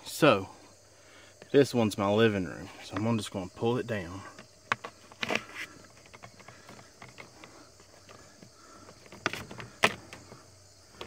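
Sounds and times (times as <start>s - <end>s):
handling ticks: 2.8s - 11.0s.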